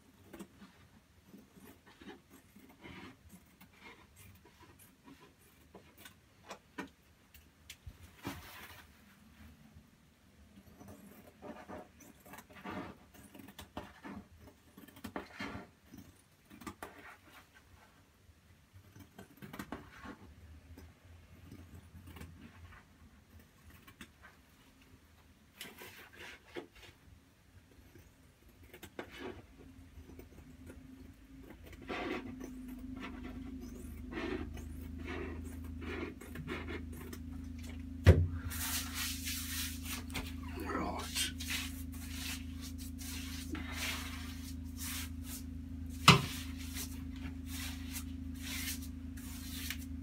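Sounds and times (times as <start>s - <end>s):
wallpaper rustling and scraping: 0.0s - 7.2s, 7.8s - 50.0s
wallpaper rustling: 7.8s - 9.6s, 30.5s - 50.0s.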